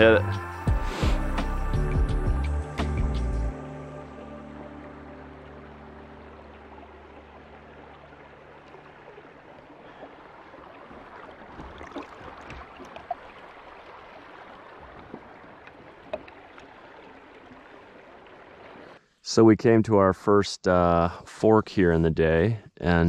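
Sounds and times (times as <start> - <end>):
water washing around kayak: 6.5 - 19.0
knocks against hull: 10.9 - 13.2, 14.9 - 15.4.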